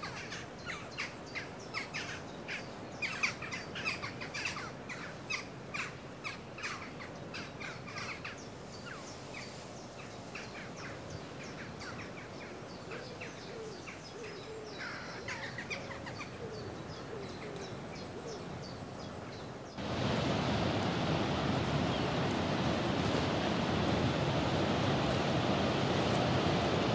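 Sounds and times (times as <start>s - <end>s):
surf and wind rushing: 0.0s - 12.9s, 18.4s - 26.9s
songbirds chirping and singing: 9.8s - 19.8s.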